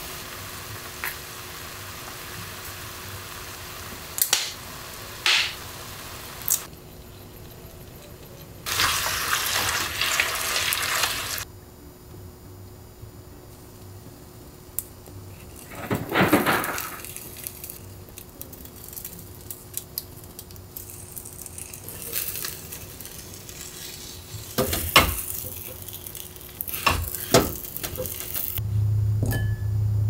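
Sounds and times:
egg sizzling in a pan: 0.0 - 6.7, 8.6 - 11.5, 15.4 - 28.6
low hum: 28.6 - 30.0.

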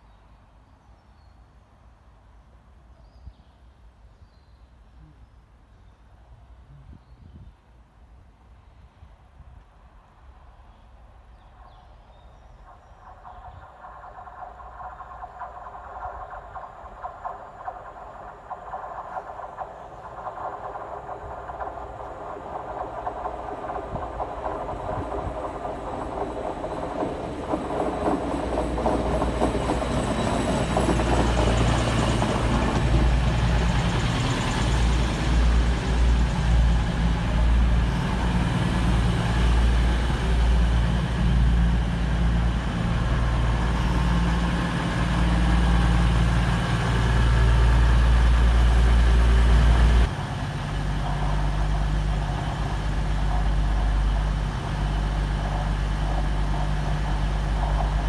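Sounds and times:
diesel train engines droning: 12.6 - 58.0.

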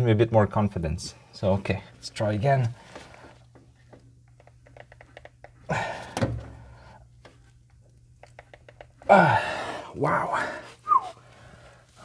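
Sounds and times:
person grunting: 9.1 - 10.6.

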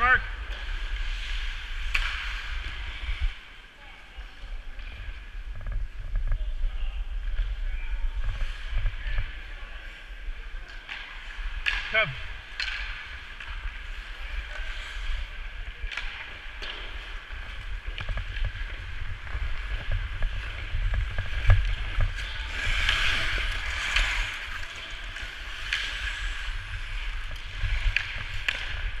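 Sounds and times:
hockey sticks and puck clicks: 0.4 - 3.3, 10.5 - 29.0
wind buffeting microphone: 17.5 - 23.7.

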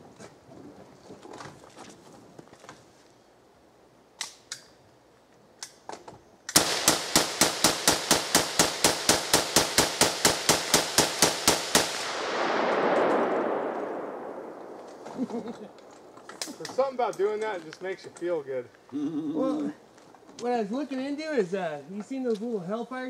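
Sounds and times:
rifle shots: 6.5 - 16.1.

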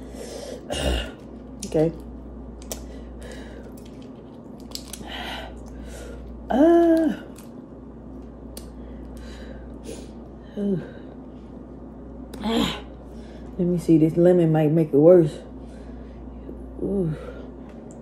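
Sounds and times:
shrimp shells cracking: 1.1 - 7.6.

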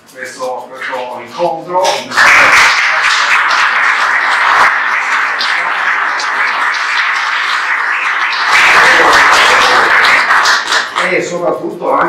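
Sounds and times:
audience applauding: 1.8 - 11.2.

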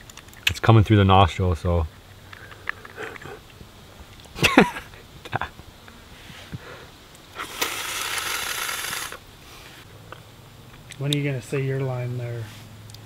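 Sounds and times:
loud hissing suck: 6.1 - 9.9
person sucking air hard: 6.4 - 9.8.

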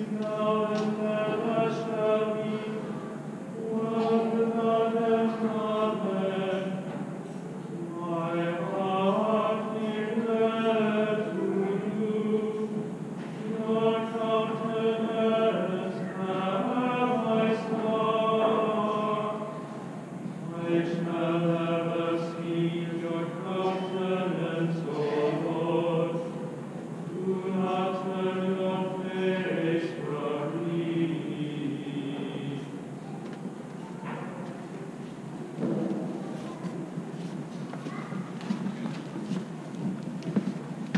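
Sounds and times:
men's choir chanting unaccompanied: 0.0 - 7.1, 7.7 - 19.8, 20.4 - 32.9.

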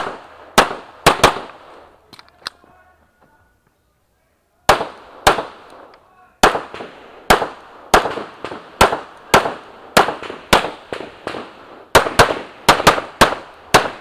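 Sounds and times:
pistol shots with ringing echo: 0.0 - 1.9, 4.7 - 14.0.

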